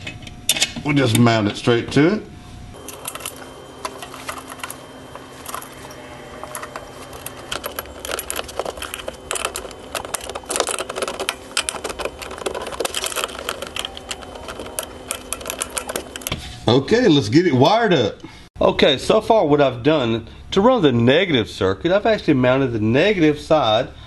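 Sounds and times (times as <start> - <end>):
metallic clicking and rattling: 2.8 - 16.3.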